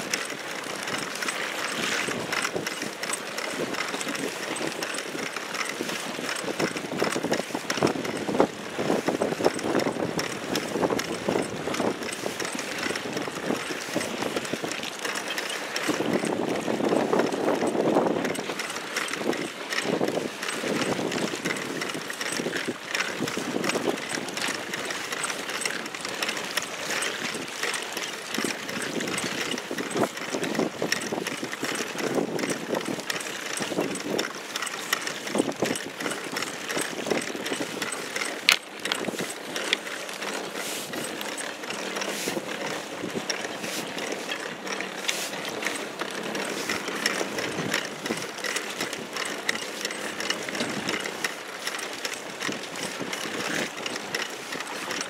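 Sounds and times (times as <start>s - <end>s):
pedal drive clicking and creaking: 0.0s - 55.0s
water lapping against boat: 0.0s - 55.0s
wind noise: 6.5s - 14.9s, 15.9s - 24.8s, 28.3s - 34.3s.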